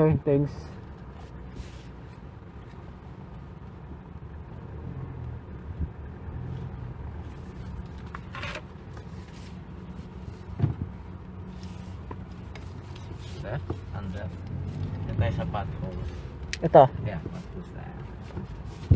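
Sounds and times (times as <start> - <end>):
truck engine droning: 0.0 - 18.9.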